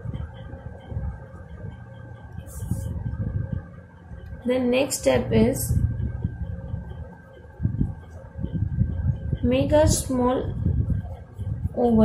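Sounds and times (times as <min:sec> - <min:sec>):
faint steady hum: 0:00.0 - 0:12.0
hand rubbing on paper: 0:02.4 - 0:03.0.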